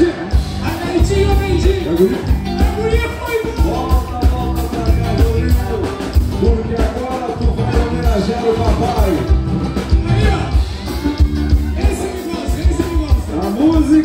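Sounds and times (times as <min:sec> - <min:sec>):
drum kit beat: 0:00.0 - 0:14.0
electric guitar: 0:00.0 - 0:14.0.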